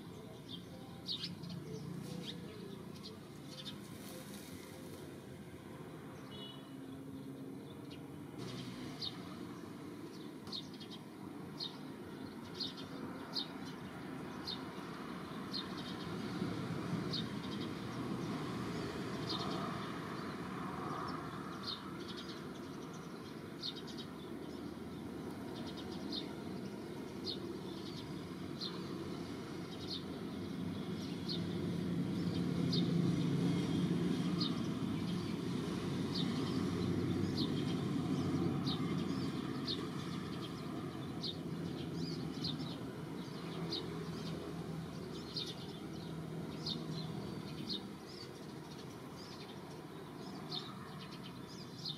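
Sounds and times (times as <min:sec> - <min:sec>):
bird chirping: 0:06.2 - 0:06.8.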